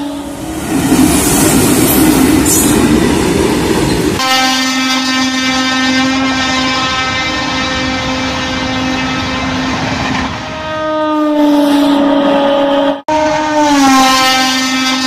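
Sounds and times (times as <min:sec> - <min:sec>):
train horn: 0:00.0 - 0:00.5, 0:04.2 - 0:15.0
passing train rumble: 0:00.0 - 0:15.0.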